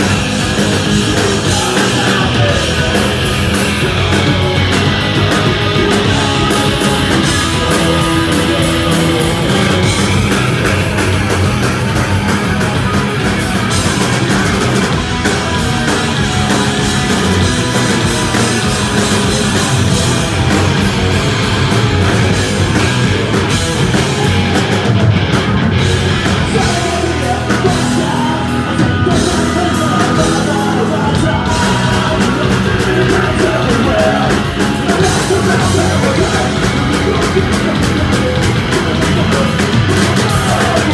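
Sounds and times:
bass guitar: 0.0s - 40.9s
drum kit: 0.0s - 40.9s
electric guitar: 0.0s - 40.9s
shouted vocals: 26.4s - 40.9s.

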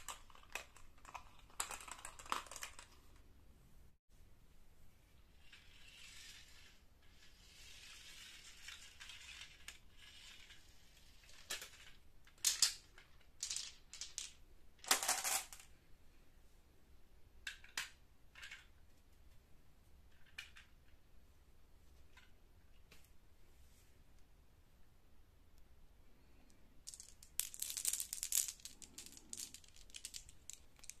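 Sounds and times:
plastic toy truck clicking and clattering: 0.0s - 3.0s, 7.4s - 15.6s.

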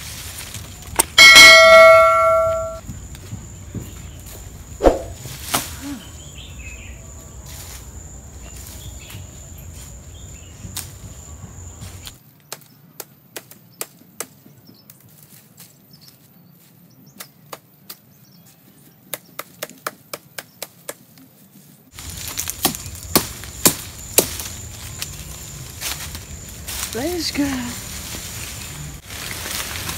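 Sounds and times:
blade chopping leaves: 4.8s - 6.0s, 22.0s - 29.9s.

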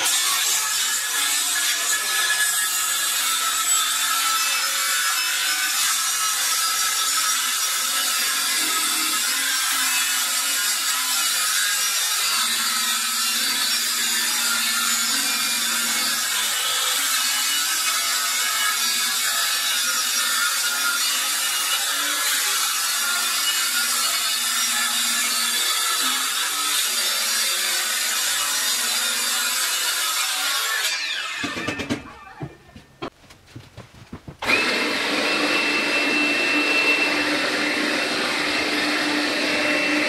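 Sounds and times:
circular saw cutting wood: 0.0s - 32.8s, 34.4s - 40.0s.

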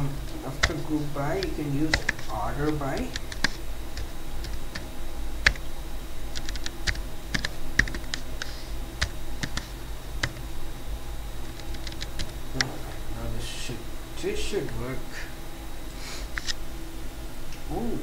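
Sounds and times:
steady low hum: 0.0s - 18.0s
computer keyboard key clicks: 1.4s - 4.8s, 9.4s - 10.4s.

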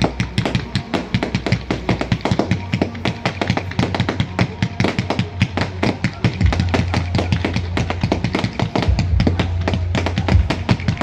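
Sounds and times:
fireworks popping and crackling: 0.0s - 11.0s.

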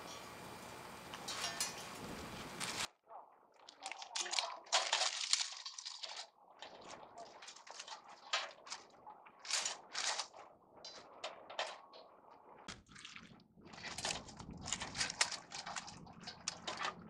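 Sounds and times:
low steady hum: 0.0s - 2.9s
dry leaves and twigs crunching: 1.1s - 2.9s, 3.7s - 8.8s, 9.4s - 10.4s.

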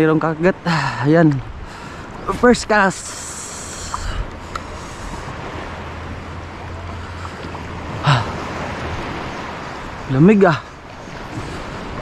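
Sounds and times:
wind buffeting microphone: 0.0s - 12.0s
lapping water: 0.7s - 9.2s.

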